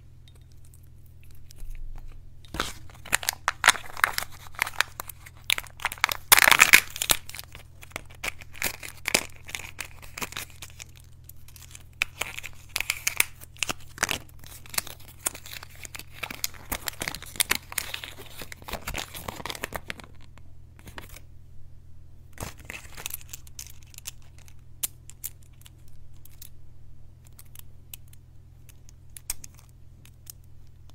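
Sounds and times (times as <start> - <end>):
low steady hum: 0.0 - 30.9
foil seal crinkling and tearing: 1.4 - 21.2, 22.4 - 24.6
wrapper packet tearing: 2.5 - 21.2, 22.4 - 26.5.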